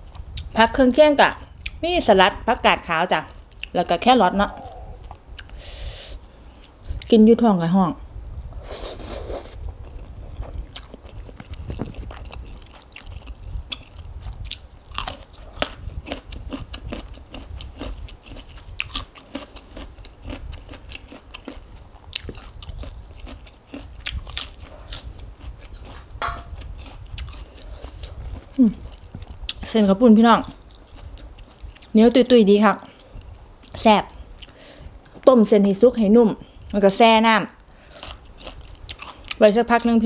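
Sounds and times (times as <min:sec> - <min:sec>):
person chewing noisily: 0:04.4 - 0:05.6, 0:08.4 - 0:29.8, 0:30.4 - 0:32.0, 0:32.9 - 0:35.2, 0:37.8 - 0:39.9.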